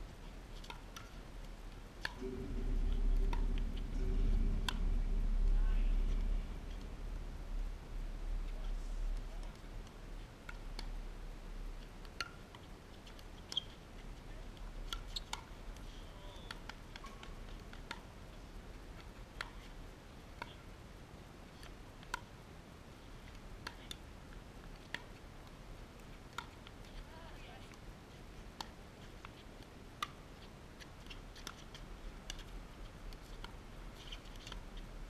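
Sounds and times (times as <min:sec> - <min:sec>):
wind rumble on microphone: 0:01.6 - 0:12.0
pickleballs hit and bouncing: 0:23.2 - 0:24.0.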